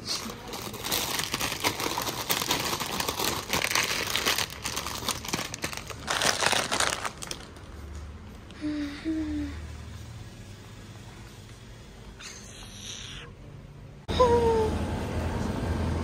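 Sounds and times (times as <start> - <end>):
crinkling rustling handling noise: 0.0 - 8.0.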